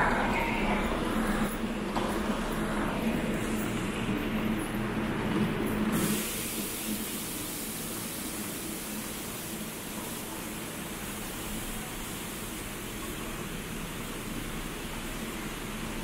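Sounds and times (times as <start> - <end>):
air handling hiss: 5.9 - 12.8.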